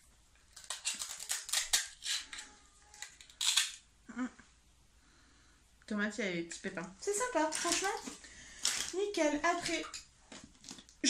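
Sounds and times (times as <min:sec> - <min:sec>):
toy food crackly ripping: 0:00.5 - 0:03.8, 0:07.5 - 0:09.0.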